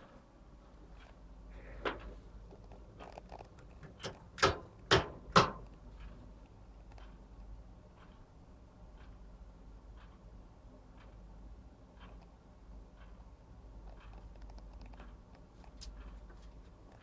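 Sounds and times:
low steady hum: 0.0 - 17.0
sharp knocks: 4.0 - 5.7.

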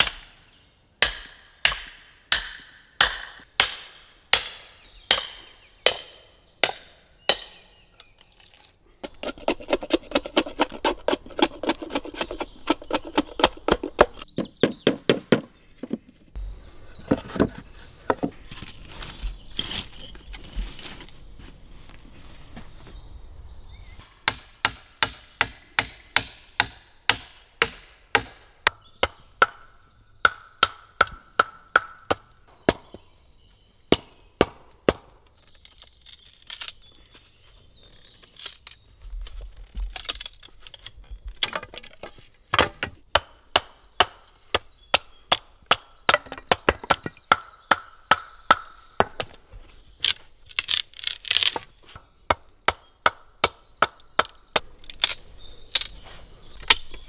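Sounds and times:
billhook chopping wood: 1.0 - 7.6, 9.0 - 16.0, 24.2 - 33.0, 33.9 - 35.8, 41.4 - 55.9.

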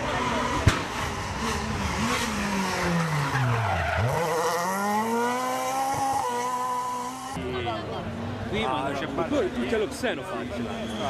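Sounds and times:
rally car engine revving: 0.0 - 7.4.

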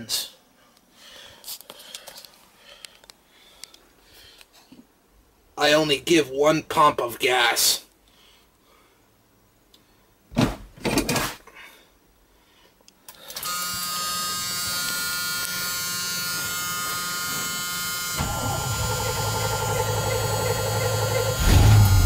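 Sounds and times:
steady electric buzz: 13.4 - 22.0
starter cranking engine: 18.2 - 22.0.

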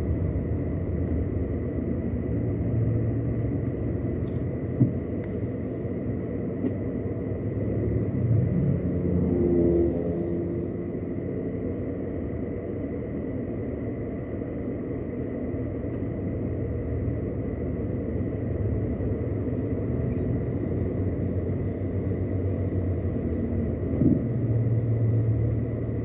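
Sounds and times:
car engine idling: 0.0 - 7.8.

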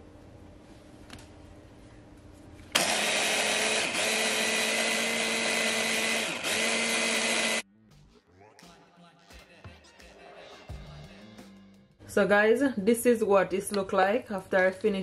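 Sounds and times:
food processor motor running: 2.8 - 7.6.

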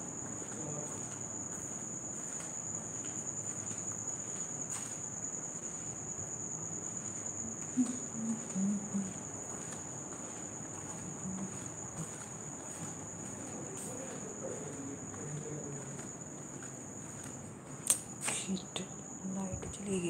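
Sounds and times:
crickets trilling: 0.0 - 20.0
faint low murmur: 7.4 - 20.0.

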